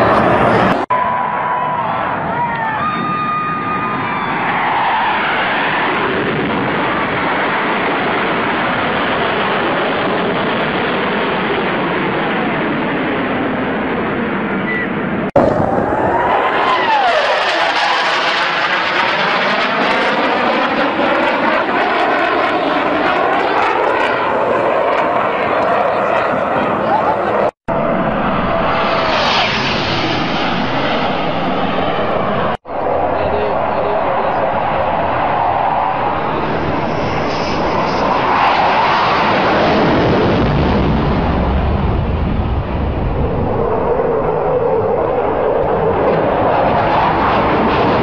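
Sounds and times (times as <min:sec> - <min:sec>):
fighter jet roaring overhead: 0:00.0 - 0:48.0
deep rumble: 0:24.3 - 0:48.0.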